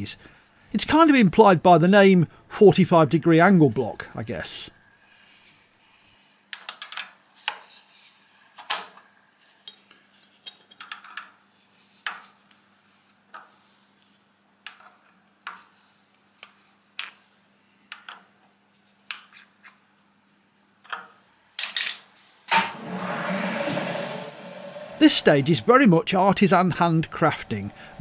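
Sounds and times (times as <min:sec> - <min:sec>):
faint low hum: 0:22.5 - 0:28.0.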